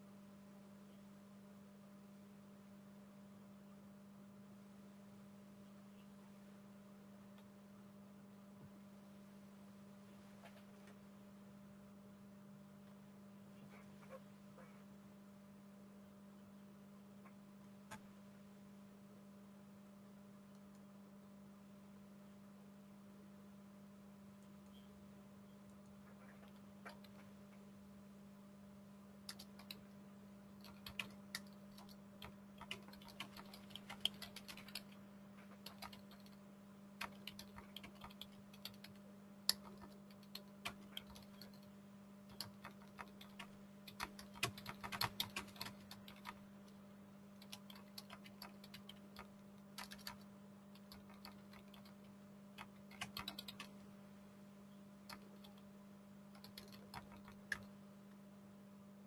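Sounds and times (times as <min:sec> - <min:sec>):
steady low hum: 0:00.0 - 0:59.0
typing on keyboard: 0:26.3 - 0:27.2, 0:29.2 - 0:30.0, 0:30.6 - 0:36.4, 0:37.0 - 0:46.4, 0:47.4 - 0:53.8, 0:55.0 - 0:55.6, 0:56.3 - 0:57.7.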